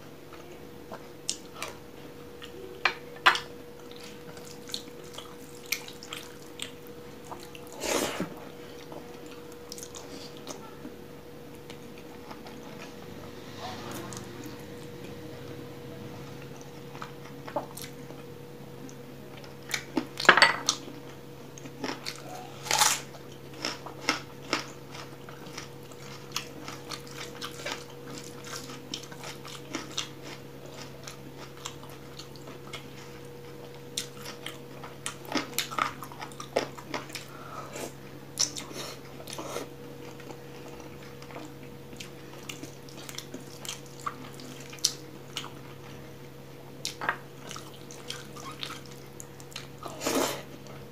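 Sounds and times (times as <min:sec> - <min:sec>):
steady low hum: 0:00.0 - 0:50.9
chewing: 0:03.8 - 0:10.6, 0:16.4 - 0:46.0, 0:46.8 - 0:50.8.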